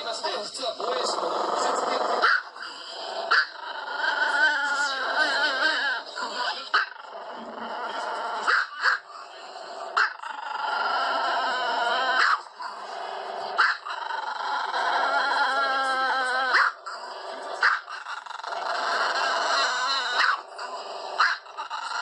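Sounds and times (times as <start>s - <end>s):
dogs whining: 0.7s - 22.0s
dog yips and barks: 2.2s - 2.5s, 3.3s - 3.5s, 8.5s - 9.0s, 12.2s - 12.4s, 13.6s - 13.9s, 16.5s - 16.8s, 17.6s - 18.0s, 20.2s - 20.4s, 21.2s - 21.4s.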